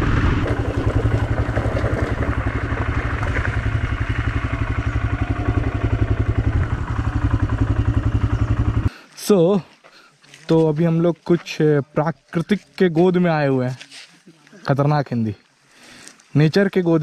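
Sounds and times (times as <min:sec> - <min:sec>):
motorcycle engine running: 0:00.0 - 0:08.9
rushing riding noise: 0:00.0 - 0:08.9.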